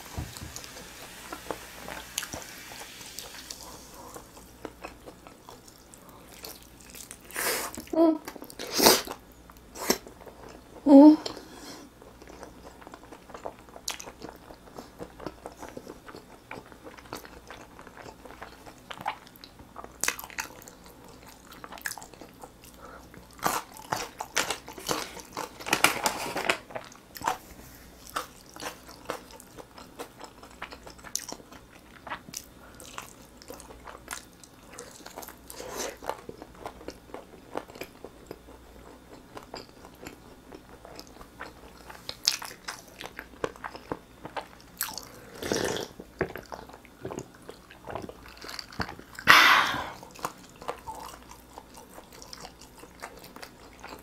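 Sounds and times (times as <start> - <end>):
person chewing and biting: 28.0 - 54.0.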